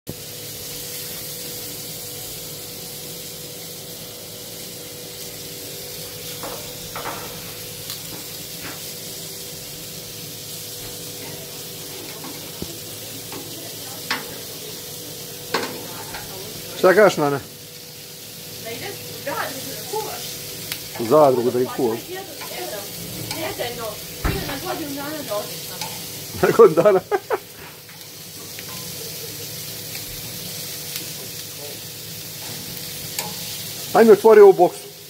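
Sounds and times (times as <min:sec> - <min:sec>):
food sizzling on a grill: 0:00.1 - 0:35.0
metal tongs clicking: 0:33.2 - 0:33.4.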